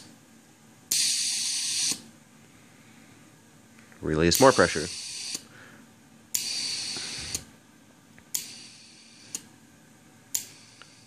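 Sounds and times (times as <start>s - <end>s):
air hissing: 0.9s - 2.1s, 4.4s - 5.5s, 6.3s - 7.5s, 8.3s - 9.5s
solenoid valves clicking: 10.3s - 10.5s.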